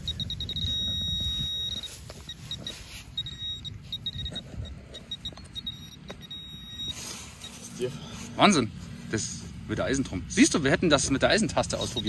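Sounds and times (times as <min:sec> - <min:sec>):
metal detector beeping: 0:00.0 - 0:07.9, 0:11.5 - 0:12.0.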